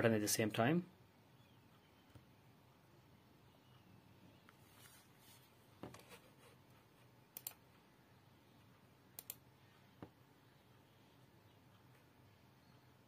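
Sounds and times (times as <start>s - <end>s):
computer mouse clicking: 7.3s - 7.6s, 9.2s - 9.4s.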